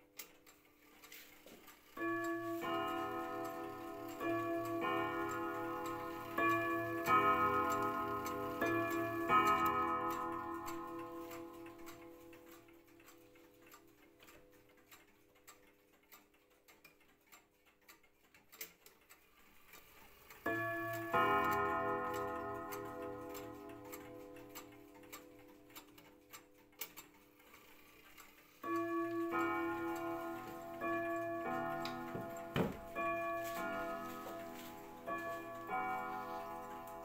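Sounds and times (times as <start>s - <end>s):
pendulum clock ticking: 0.0s - 37.0s
clock gong strikes: 2.0s - 12.1s, 28.8s - 37.0s.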